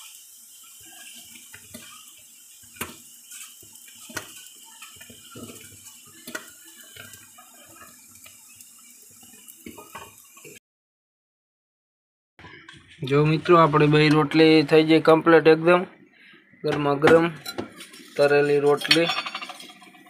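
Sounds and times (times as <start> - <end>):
ladle stirring: 0.7 - 8.4
milk tea bubbling in pot: 0.7 - 10.0
metal clinks on pot: 18.8 - 19.9.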